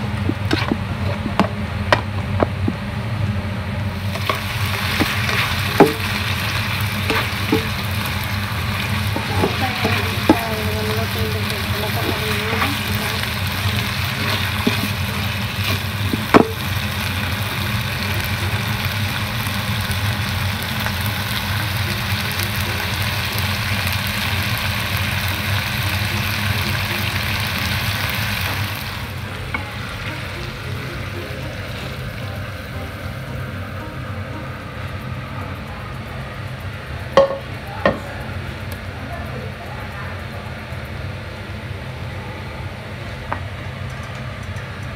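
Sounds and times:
squid and peppers sizzling in pan: 0.0s - 44.9s
steady low hum: 0.0s - 44.9s.

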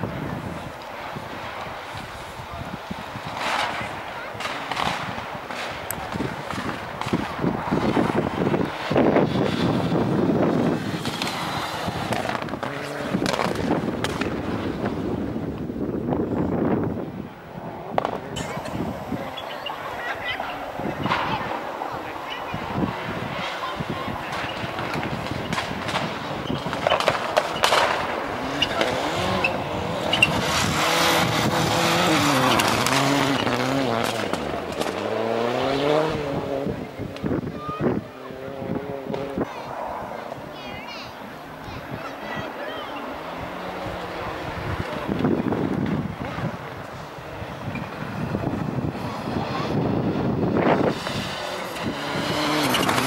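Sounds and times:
wind rumble on microphone: 0.0s - 42.5s, 43.1s - 53.0s
rally car engine: 0.0s - 53.0s
sharp cracks: 3.2s - 9.9s, 10.7s - 14.6s, 24.2s - 35.5s.

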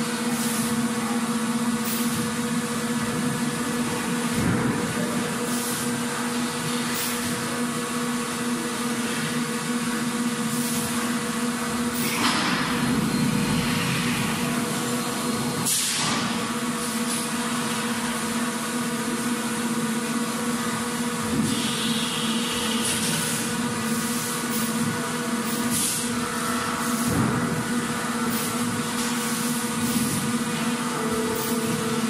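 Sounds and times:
factory machinery humming: 0.0s - 32.0s.

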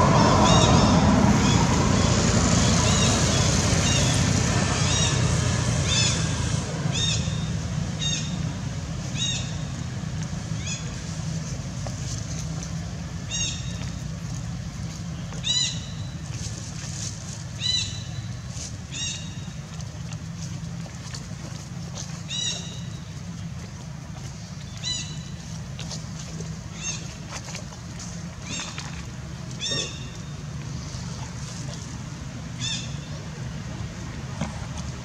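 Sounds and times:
low rumble: 0.0s - 7.9s.

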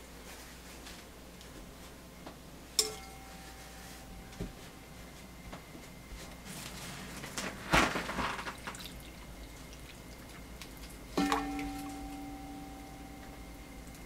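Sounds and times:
liquid dripping and splashing: 8.5s - 12.2s.

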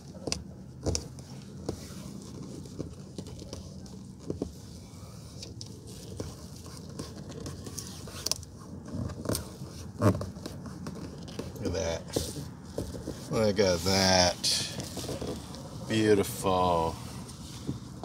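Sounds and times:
fingers rubbing mat on plastic: 0.0s - 18.0s.

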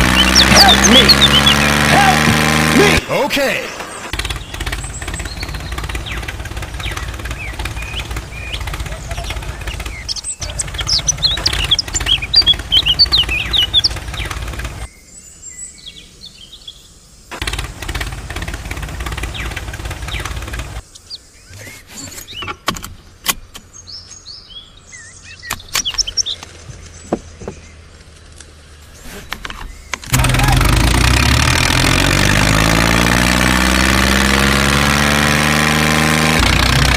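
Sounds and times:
engine chugging: 0.0s - 14.9s, 17.3s - 20.8s, 30.1s - 36.9s
birds chirping: 0.0s - 36.9s.

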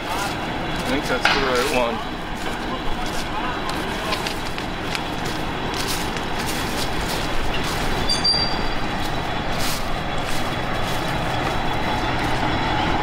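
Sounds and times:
machine rumble: 0.0s - 13.0s
brief high squeal: 8.0s - 8.8s.

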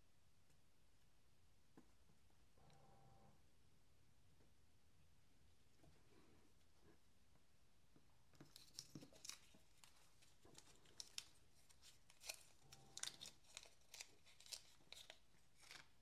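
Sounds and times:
plastic bag crinkling: 8.4s - 16.0s.

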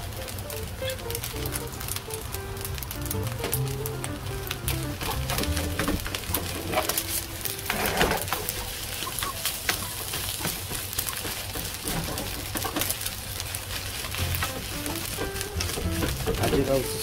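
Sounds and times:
frying hiss: 0.0s - 17.0s
spatula scraping frying pan: 6.3s - 13.0s.

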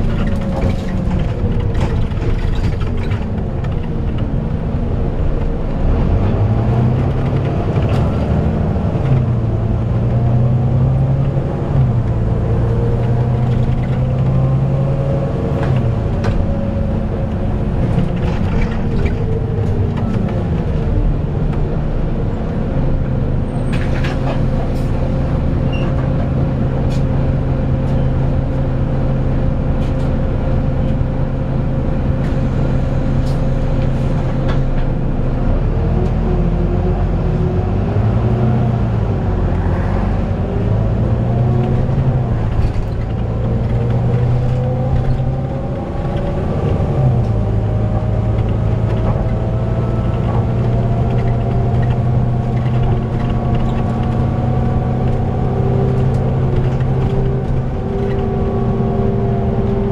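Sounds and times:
bus engine: 0.0s - 59.9s
engine cooling fan whining: 38.9s - 59.9s.

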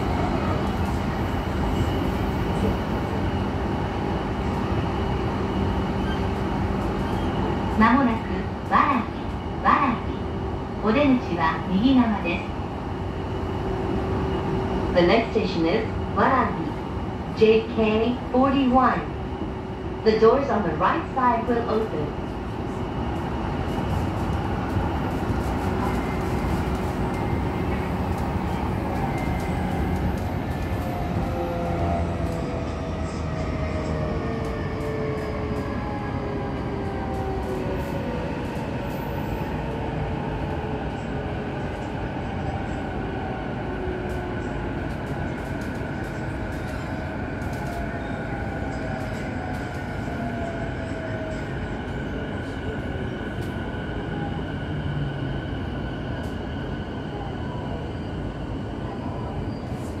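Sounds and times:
wheels rumbling on rail: 0.0s - 60.0s.

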